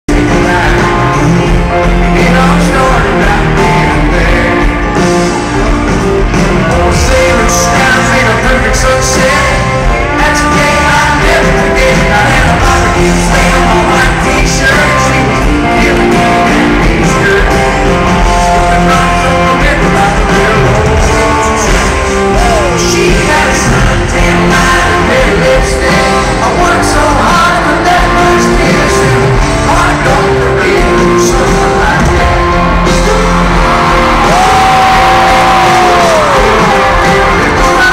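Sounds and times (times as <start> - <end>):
loud live rock band: 0.0 - 37.9
lead singer singing: 0.1 - 37.9.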